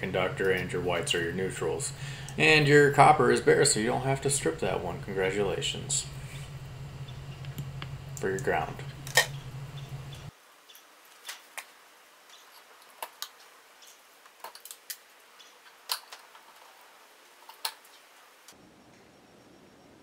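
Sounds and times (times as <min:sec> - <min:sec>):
low hum: 0:00.0 - 0:10.3, 0:18.5 - 0:20.0.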